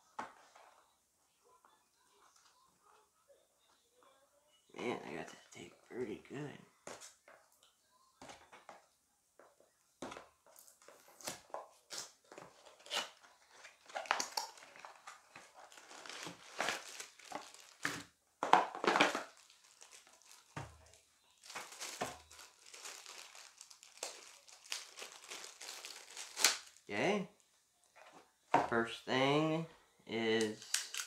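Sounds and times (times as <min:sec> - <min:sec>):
plastic bags crinkling: 0:12.5 - 0:26.9.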